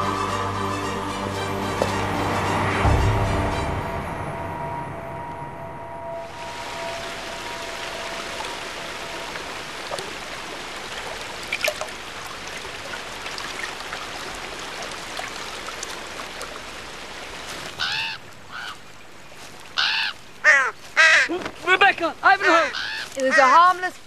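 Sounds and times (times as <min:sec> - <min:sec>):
stream running over stones: 0:06.2 - 0:24.0
faint water splashes: 0:06.3 - 0:24.0
raven cawing: 0:17.7 - 0:18.9, 0:19.8 - 0:21.3, 0:22.4 - 0:23.6.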